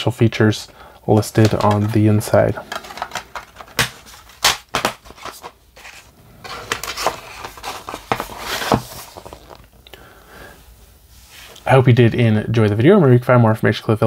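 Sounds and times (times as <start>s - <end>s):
plastic case clicks and snaps: 2.7s - 5.0s.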